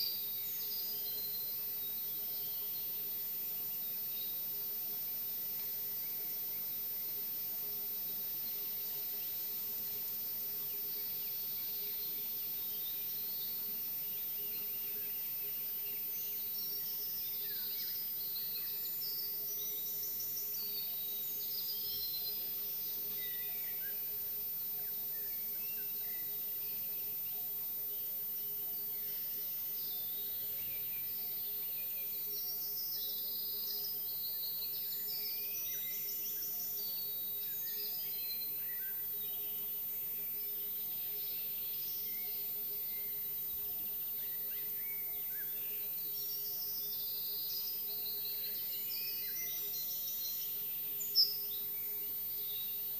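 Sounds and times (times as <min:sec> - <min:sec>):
songbirds chirping and trilling: 0:10.7 - 0:52.9.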